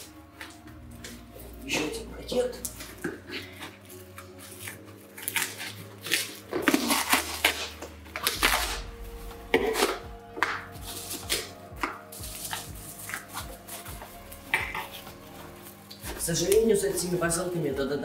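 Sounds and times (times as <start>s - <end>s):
scissors cutting cardboard: 4.4s - 8.8s.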